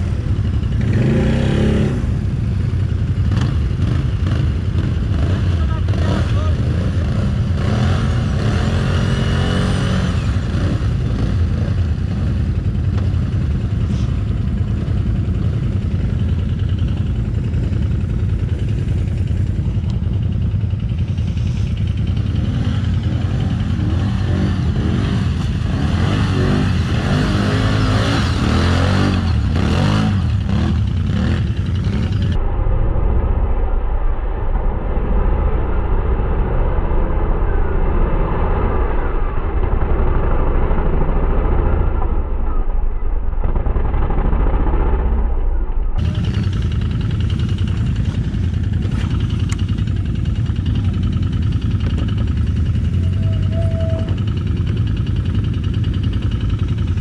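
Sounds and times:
off-road vehicle engine revving: 0.0s - 19.7s, 21.0s - 32.4s, 46.0s - 57.0s.

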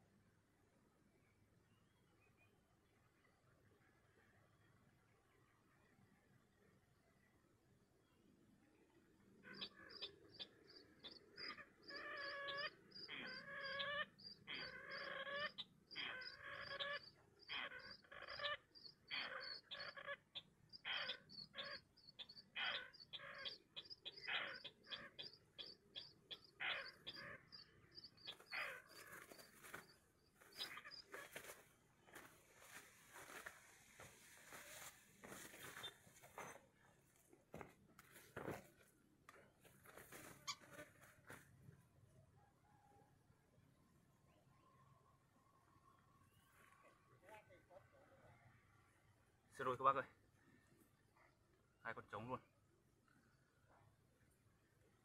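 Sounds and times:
bird harsh repeated calls: 9.4s - 36.6s.

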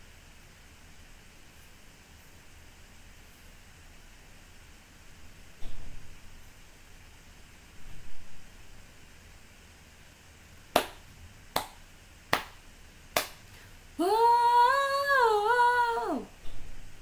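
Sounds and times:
finger snaps: 10.8s - 12.6s, 13.2s - 13.4s
woman singing long note: 14.0s - 16.4s.

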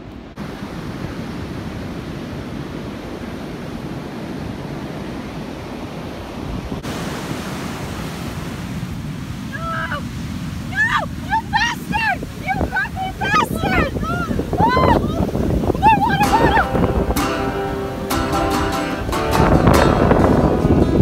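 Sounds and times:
ocean surf breaking: 0.0s - 21.0s
wind noise on microphone: 0.0s - 21.0s.

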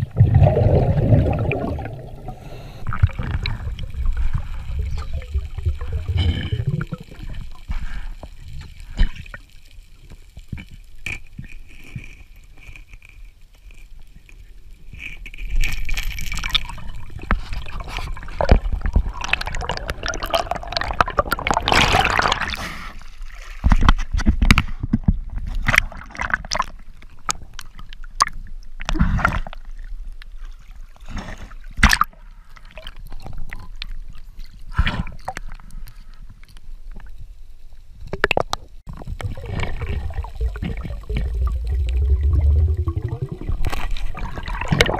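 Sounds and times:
water gurgling and sloshing: 0.0s - 13.9s, 14.8s - 44.9s
low rumble: 39.0s - 44.5s.

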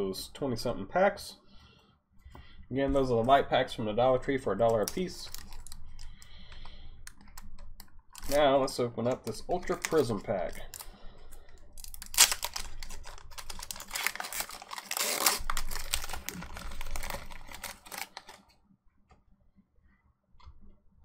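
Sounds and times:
foil wrapper tearing and crinkling: 4.7s - 6.2s, 8.2s - 8.4s, 9.2s - 18.5s.

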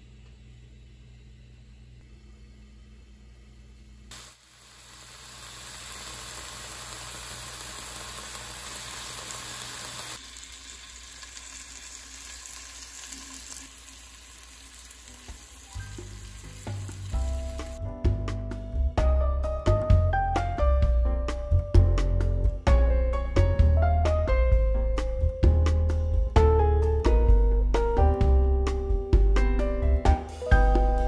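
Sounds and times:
bacon rolls sizzling in a pan: 4.1s - 17.8s.

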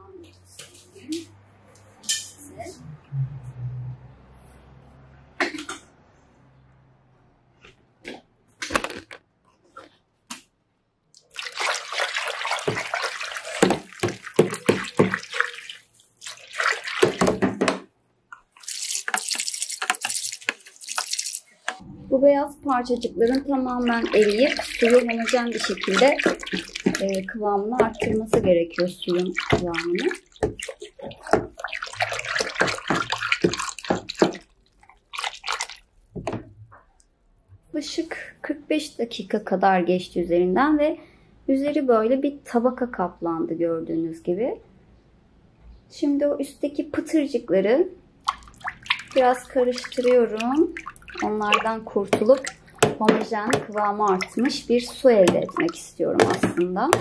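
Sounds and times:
hand whisk sloshing water: 11.2s - 17.8s, 18.4s - 21.8s, 22.7s - 36.4s, 48.2s - 57.0s.

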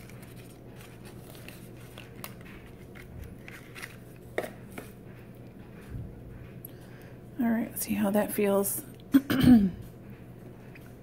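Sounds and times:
paperboard carton rustling: 0.0s - 4.9s.

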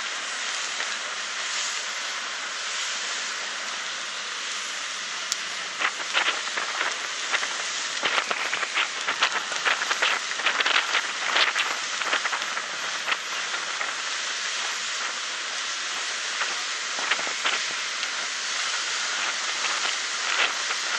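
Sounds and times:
water rushing along boat hull: 0.0s - 20.9s
water splashing and slapping: 5.3s - 20.9s.

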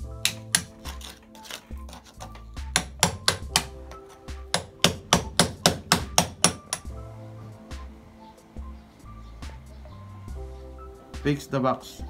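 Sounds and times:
hammer striking chisel on concrete: 0.2s - 7.0s.

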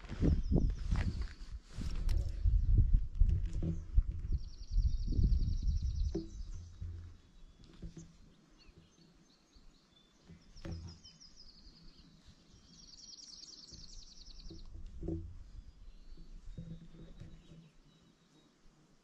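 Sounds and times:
dull low thumps: 0.0s - 8.2s
faint bird chirps: 4.2s - 14.8s.

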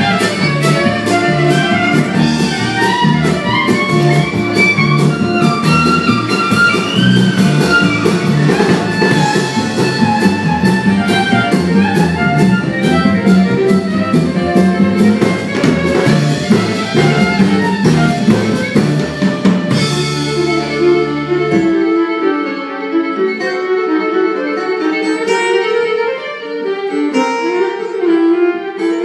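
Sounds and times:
steady drum beat: 0.0s - 22.1s
fiddle: 0.0s - 29.0s.

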